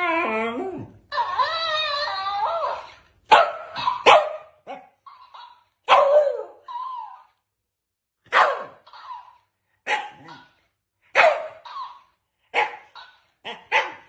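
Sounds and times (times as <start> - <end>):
dog barking and yapping: 2.6 - 7.2, 8.2 - 14.0.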